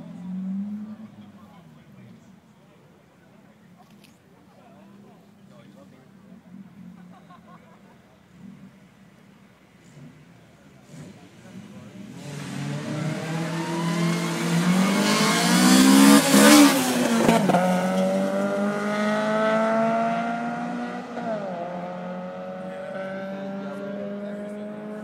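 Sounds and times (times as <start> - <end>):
car accelerating past: 9.8 - 25.0.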